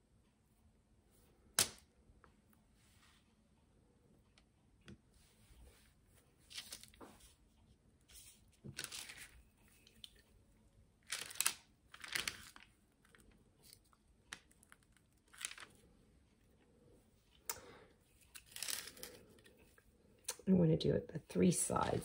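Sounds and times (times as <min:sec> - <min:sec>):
parchment paper crinkling: 0:05.7 - 0:16.7, 0:17.3 - 0:19.8.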